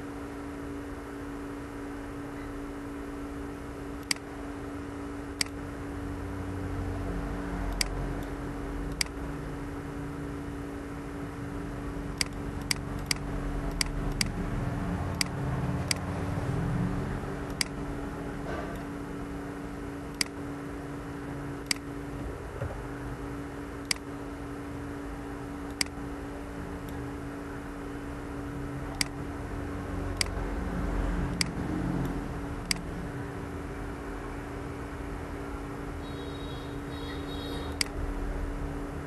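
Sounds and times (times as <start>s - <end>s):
low electrical hum: 0.0s - 39.0s
computer mouse clicking: 4.0s - 4.3s, 5.4s - 5.6s, 7.7s - 9.2s, 12.1s - 14.4s, 15.1s - 16.1s, 17.5s - 17.8s, 20.1s - 20.4s, 21.6s - 21.9s, 23.8s - 24.1s, 25.7s - 26.0s, 28.9s - 29.2s, 30.1s - 30.4s, 31.3s - 32.9s, 37.7s - 38.0s.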